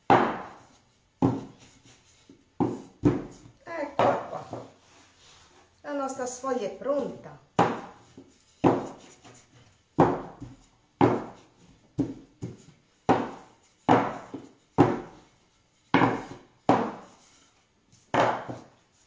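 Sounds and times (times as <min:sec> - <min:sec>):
rolling pin knocking on board: 0:00.0 - 0:00.6, 0:01.2 - 0:01.6, 0:02.6 - 0:03.4, 0:04.0 - 0:04.7, 0:07.6 - 0:08.0, 0:08.6 - 0:09.0, 0:10.0 - 0:15.2, 0:15.9 - 0:17.2, 0:18.1 - 0:18.7.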